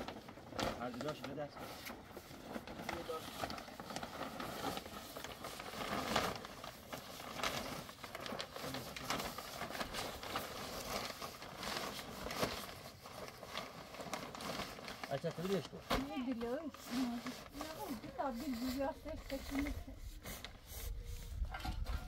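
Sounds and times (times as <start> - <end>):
rustling: 0.0 - 22.0.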